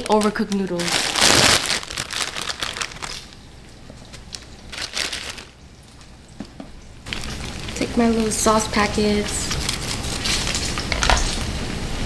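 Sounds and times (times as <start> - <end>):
plastic packet crinkling: 0.0 - 3.4, 4.0 - 5.6, 7.1 - 10.8
plastic packet ripping: 0.0 - 3.4, 4.1 - 5.6.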